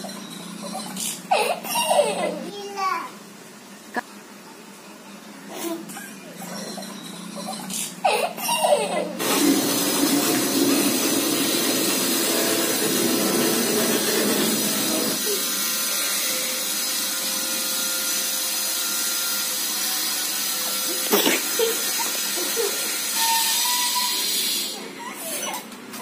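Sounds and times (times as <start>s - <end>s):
motor whirring: 8.6s - 24.8s.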